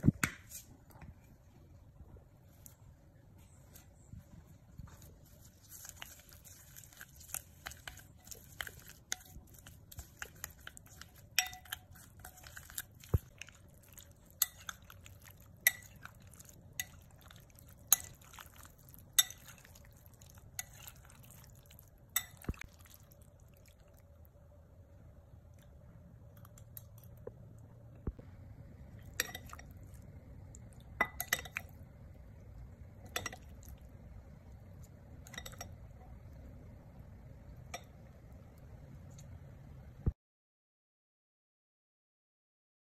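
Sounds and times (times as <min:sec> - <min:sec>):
soft rustle: 0:00.5 - 0:11.2
wet squishing: 0:04.9 - 0:24.2.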